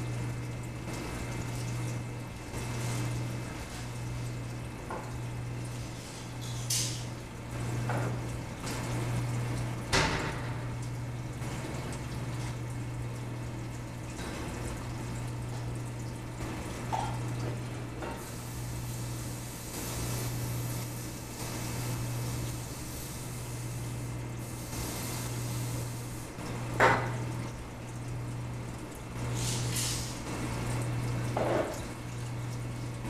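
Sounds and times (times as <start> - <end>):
aquarium water trickling: 0.0 - 33.0.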